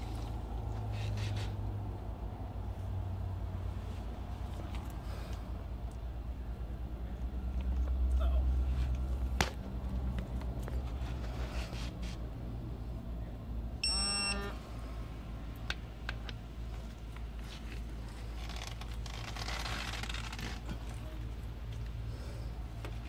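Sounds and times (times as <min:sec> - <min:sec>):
short electronic beep: 0:13.8 - 0:14.6.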